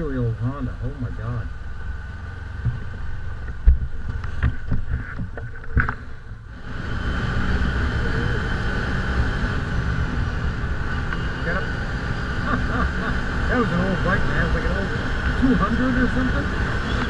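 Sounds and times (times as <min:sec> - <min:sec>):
engine driving on gravel: 0:00.0 - 0:06.5
utv engine idling: 0:00.0 - 0:17.0.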